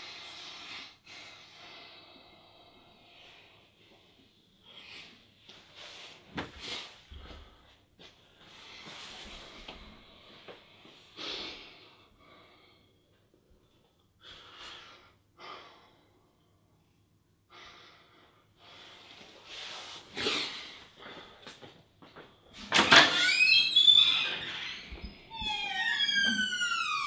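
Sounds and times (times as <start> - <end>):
man breathing heavily: 17.5 - 21.7
squeaky door creak: 22.6 - 27.0.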